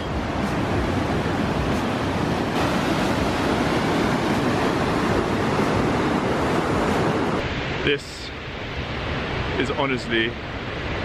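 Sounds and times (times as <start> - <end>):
river rapids rushing: 0.0 - 8.0.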